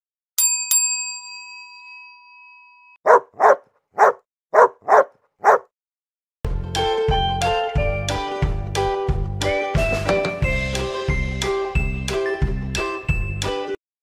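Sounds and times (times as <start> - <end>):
dog barking: 3.0 - 5.7
music: 6.5 - 13.8.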